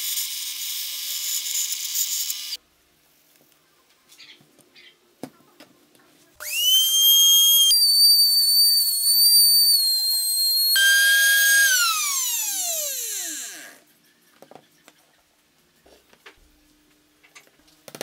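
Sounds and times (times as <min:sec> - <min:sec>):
trim router high whine: 0:06.4 - 0:13.8.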